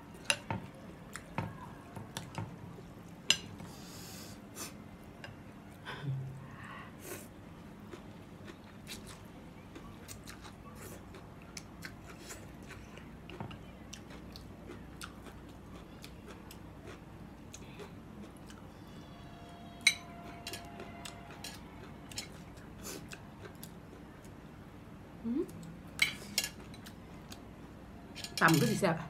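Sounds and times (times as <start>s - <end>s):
person chewing noodles: 7.0s - 18.6s, 20.1s - 24.4s.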